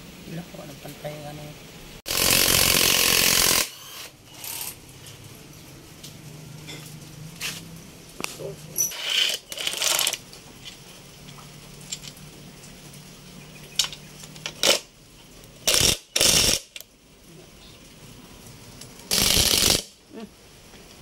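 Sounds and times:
cordless drill spinning: 2.1s - 4.8s, 15.7s - 16.8s, 19.1s - 19.8s.

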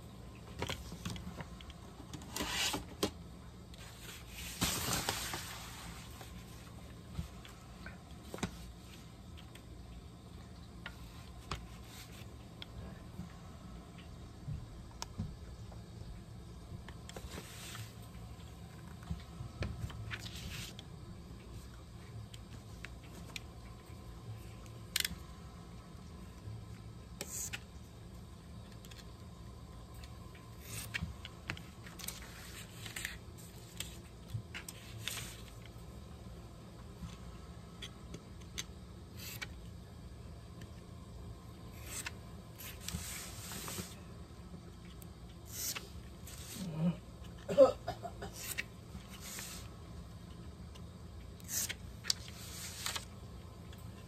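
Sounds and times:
low background hum: 0.0s - 54.0s.

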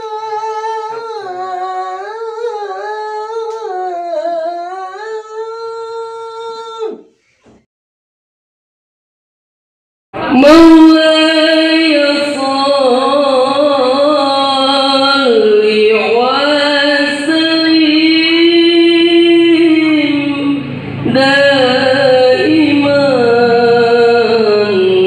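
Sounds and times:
man singing unaccompanied: 0.0s - 7.1s, 10.2s - 25.0s
singer breath: 7.1s - 7.6s.

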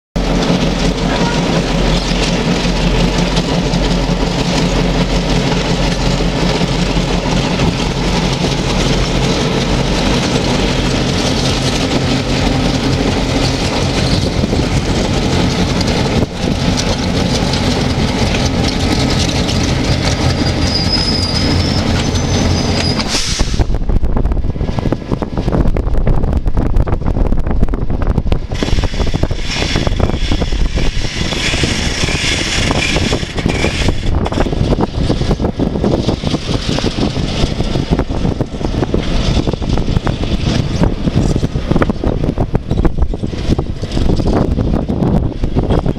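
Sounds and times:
diesel locomotives running: 0.2s - 45.9s
freight cars rolling on rails: 0.2s - 45.9s
wheel squeal: 19.1s - 23.5s, 28.6s - 34.4s.

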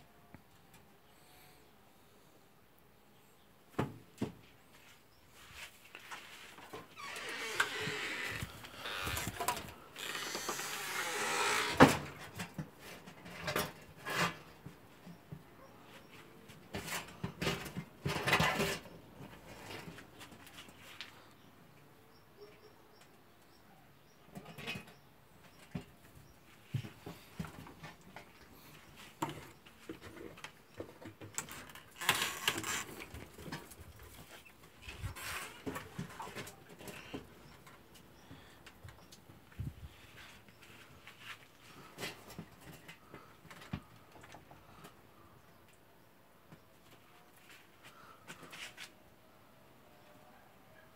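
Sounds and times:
rabbits rustling in straw: 4.7s - 6.6s.

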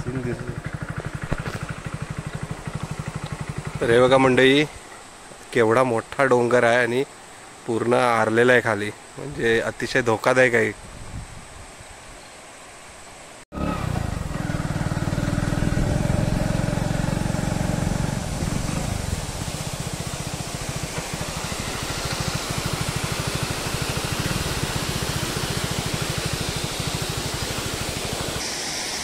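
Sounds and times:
motorcycle engine running: 0.0s - 4.4s, 13.6s - 28.4s.

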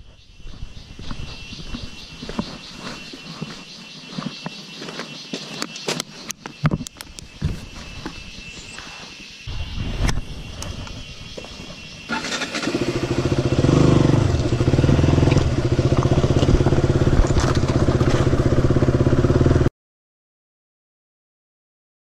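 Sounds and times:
motorcycle engine revving: 12.0s - 19.7s.

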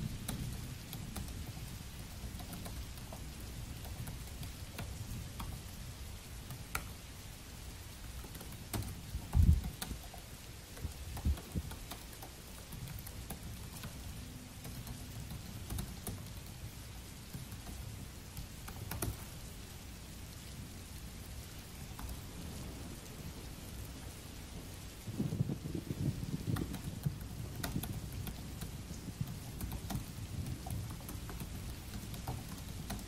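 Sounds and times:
steady rain: 0.0s - 33.0s
laptop keyboard typing clicks: 0.2s - 5.7s, 6.5s - 7.0s, 8.2s - 16.6s, 17.3s - 19.4s, 26.5s - 33.0s.

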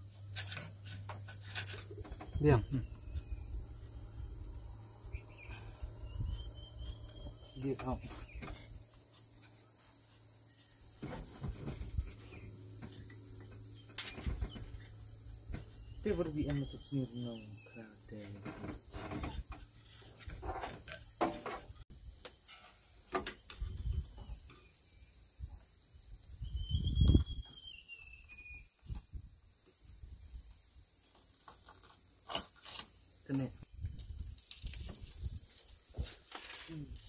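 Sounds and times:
crickets chirping: 0.0s - 37.0s.

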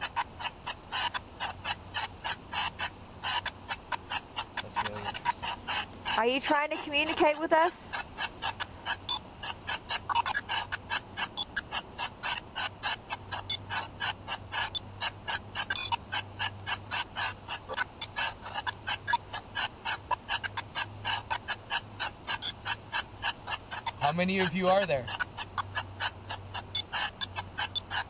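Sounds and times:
low steady hum: 0.0s - 28.0s
chopped noise and voice fragments: 4.6s - 5.5s.

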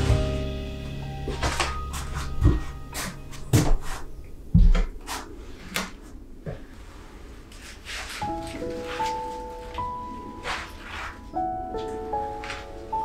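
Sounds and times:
soft background music: 0.0s - 4.6s, 7.9s - 13.0s.

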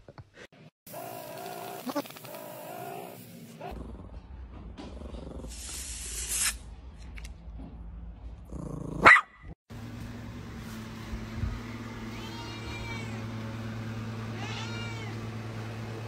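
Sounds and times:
dog growling: 1.0s - 4.2s, 8.5s - 9.1s
air hissing out of balloon: 5.5s - 6.6s
dog barking: 9.0s - 9.4s.

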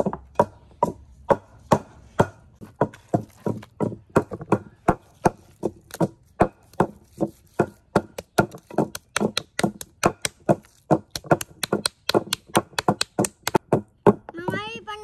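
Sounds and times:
knife chopping on wooden board: 0.0s - 14.2s.

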